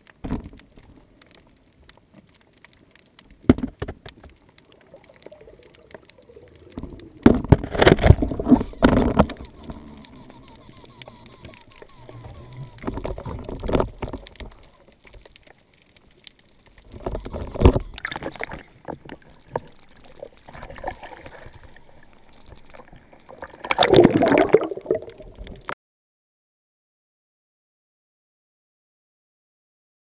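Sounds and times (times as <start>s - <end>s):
sea water sloshing and gurgling: 4.2s - 15.8s, 16.6s - 25.8s.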